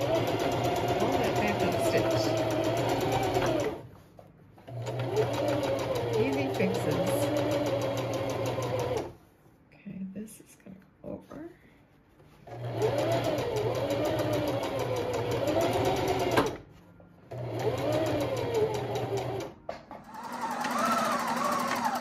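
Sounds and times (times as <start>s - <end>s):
sewing machine stitching: 0.0s - 3.8s, 4.7s - 9.2s, 12.4s - 16.6s, 17.3s - 22.0s.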